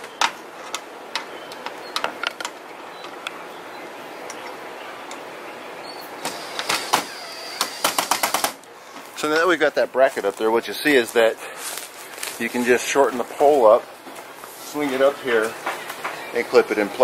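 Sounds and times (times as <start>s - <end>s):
metal hardware clicks and taps: 0.2s - 3.4s
cordless drill driving screw: 6.2s - 8.5s.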